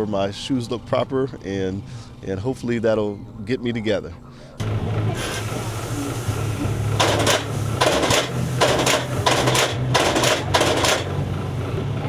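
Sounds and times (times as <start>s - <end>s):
electric motor hum: 4.6s - 12.0s
short mechanical strokes: 5.2s - 11.2s.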